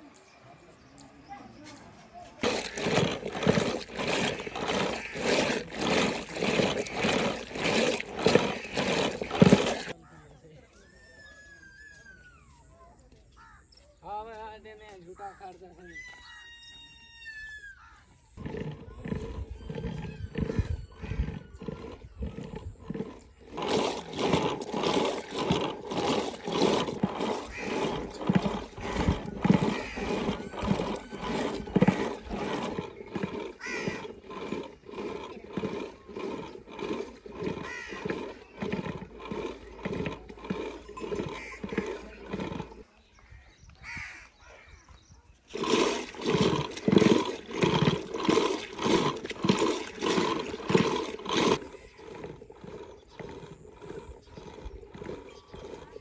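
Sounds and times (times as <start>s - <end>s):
rhythmic swishing of churning stick: 2.4s - 10.0s, 18.4s - 42.8s, 45.5s - 56.0s.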